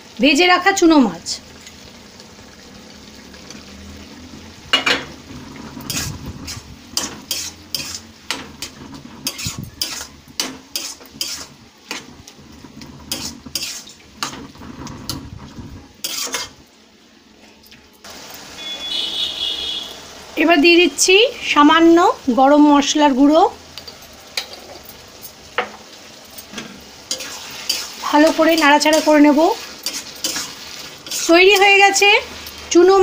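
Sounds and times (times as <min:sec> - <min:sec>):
light sizzle: 0:00.0 - 0:33.0
metal spatula scraping iron pan: 0:04.8 - 0:16.6, 0:26.4 - 0:31.9.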